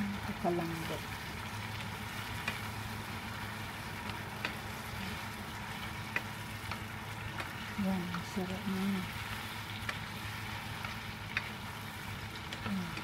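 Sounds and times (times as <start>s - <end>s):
vegetables sizzling in oil: 0.0s - 13.0s
chopsticks clicking against pan: 1.8s - 2.7s, 4.0s - 8.7s, 9.7s - 13.0s.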